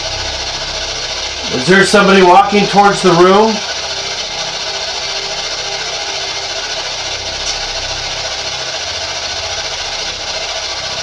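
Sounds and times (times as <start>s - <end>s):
low rhythmic pulsing hum: 0.0s - 11.0s.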